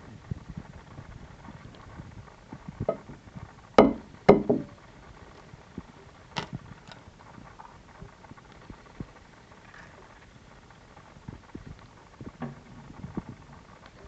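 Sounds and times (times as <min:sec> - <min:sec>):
eggshell clicking and crackling: 0:00.6 - 0:14.0
egg knocked against hard edge: 0:03.8 - 0:04.7.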